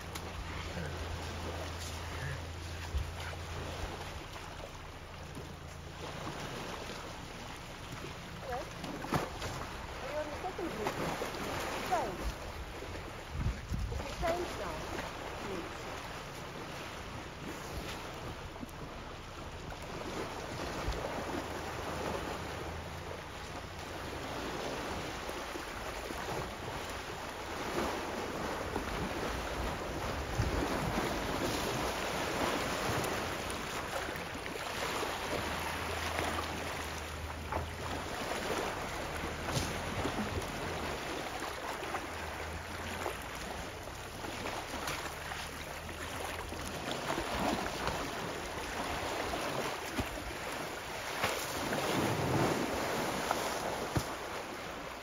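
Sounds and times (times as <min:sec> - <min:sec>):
water sloshing and splashing: 0:00.0 - 0:55.0
wind noise on microphone: 0:13.2 - 0:14.4, 0:29.0 - 0:31.2.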